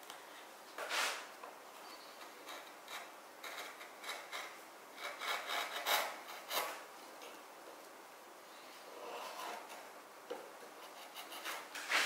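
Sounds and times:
chisel scraping wood: 2.2s - 6.8s, 9.0s - 9.9s, 10.8s - 12.0s.

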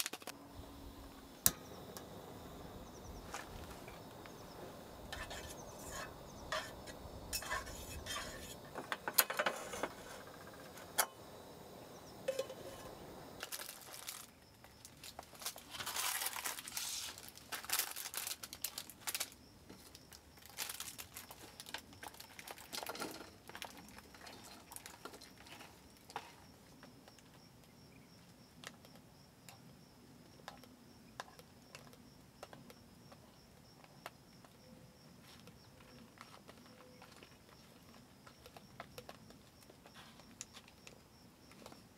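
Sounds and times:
plastic packaging crinkling: 0.0s - 0.3s, 13.4s - 25.6s
cookware and utensils clinking: 12.2s - 12.9s.

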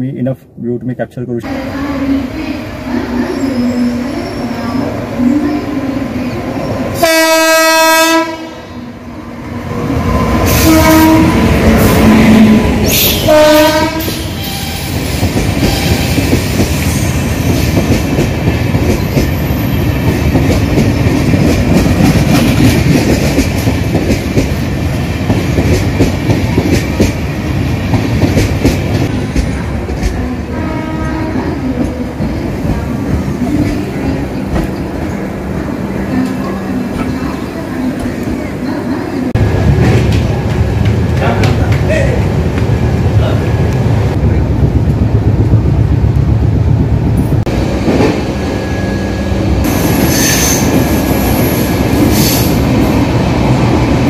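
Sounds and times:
train rumbling past: 1.4s - 54.0s
train air horn: 7.0s - 8.8s, 10.5s - 15.0s, 30.5s - 31.5s.

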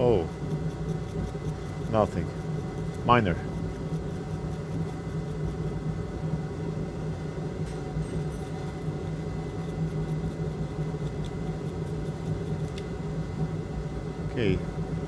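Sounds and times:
brush scrubbing circuit board: 0.0s - 5.8s, 8.0s - 12.8s
low hum of bench equipment: 0.0s - 15.0s.

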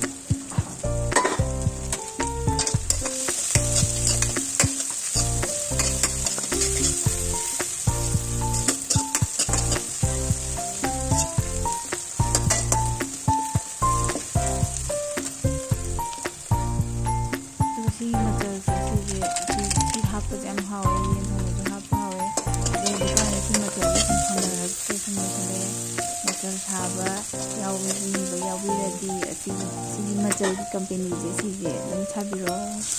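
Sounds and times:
background music: 0.0s - 32.9s
food sizzling in a pan: 0.0s - 32.9s
utensil clicking against pan: 1.1s - 7.9s, 8.5s - 10.0s, 10.7s - 13.4s, 21.7s - 25.1s.

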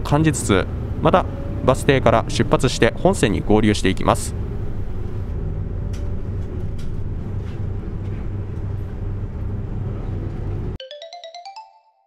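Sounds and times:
bus engine and road rumble: 0.0s - 10.8s
rising chime notes: 10.8s - 12.0s.

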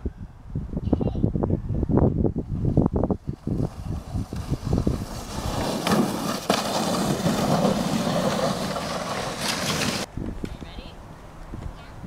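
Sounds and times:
sled scraping over snow: 3.2s - 10.1s.

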